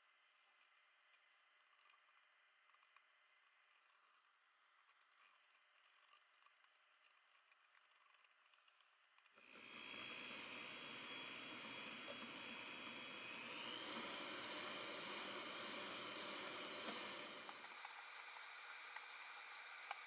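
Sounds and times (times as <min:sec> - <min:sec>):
electric hand mixer whisking: 0:09.4 - 0:20.0.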